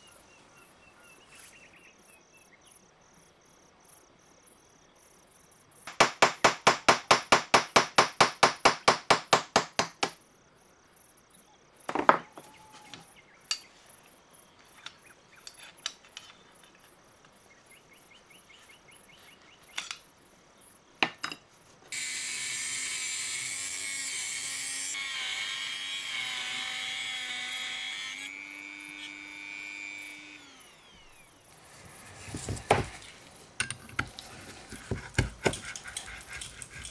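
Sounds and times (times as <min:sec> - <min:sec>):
rotary tool cutting metal: 0:21.9 - 0:31.3.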